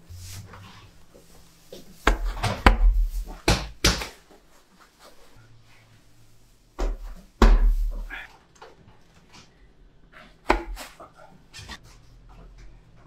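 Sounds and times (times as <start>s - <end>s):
bread dough slapped by hand: 2.0s - 4.2s, 6.8s - 8.1s, 10.5s - 10.9s.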